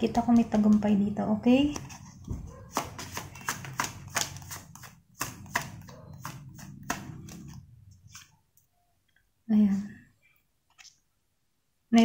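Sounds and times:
cards shuffled by hand: 1.7 - 8.4.

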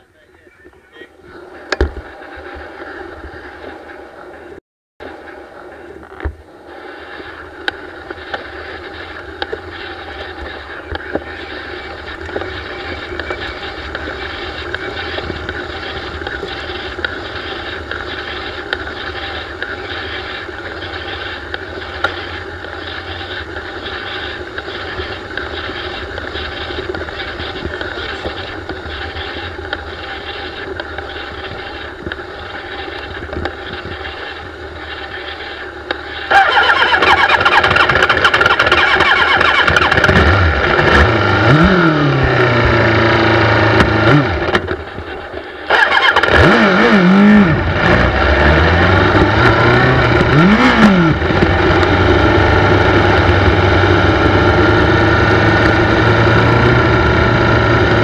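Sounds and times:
wind rush and rolling noise: 0.0 - 46.8
low hum: 0.0 - 58.0.

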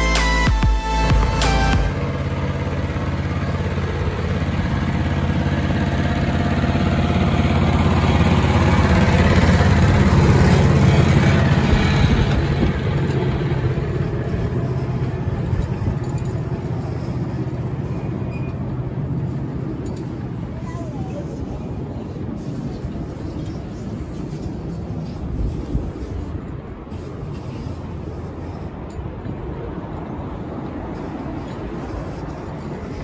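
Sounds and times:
locomotive diesel engine passing: 0.0 - 33.0.

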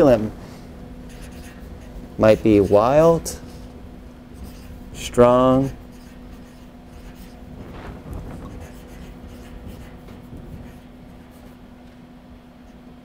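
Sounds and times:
steady low hum: 0.0 - 13.0
marker writing on paper: 1.1 - 3.7, 4.4 - 7.4, 8.4 - 11.6.

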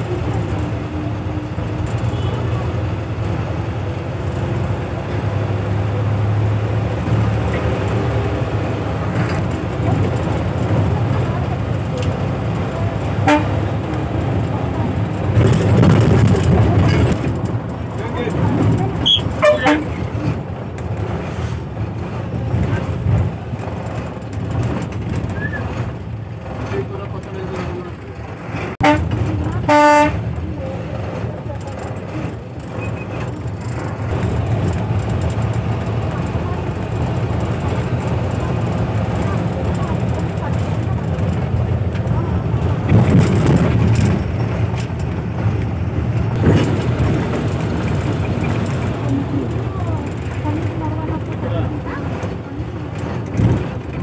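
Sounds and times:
bus engine and road rumble: 0.0 - 54.0
knocks and rattles: 13.8 - 29.6, 30.4 - 54.0.

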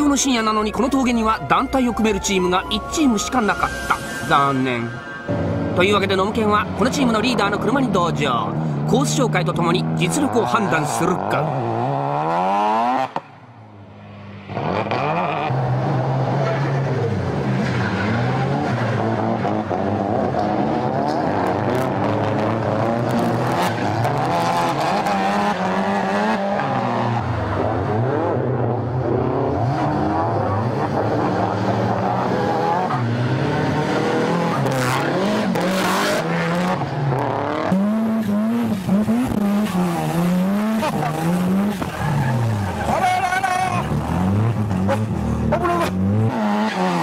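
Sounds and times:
car engine revving: 0.0 - 47.0
tyres squealing: 40.8 - 44.2.

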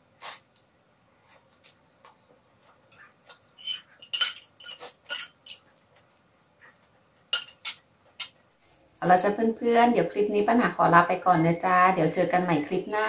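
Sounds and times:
metal spoon clinking on platter: 3.6 - 5.6, 7.3 - 8.3.

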